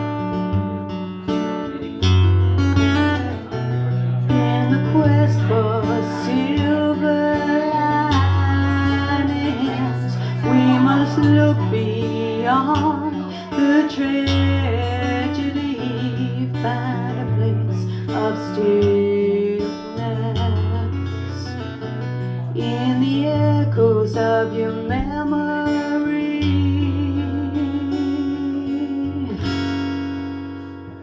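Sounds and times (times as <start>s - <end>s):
acoustic guitar: 0.0s - 31.0s
woman singing wordless melody: 4.3s - 21.7s, 22.4s - 29.7s.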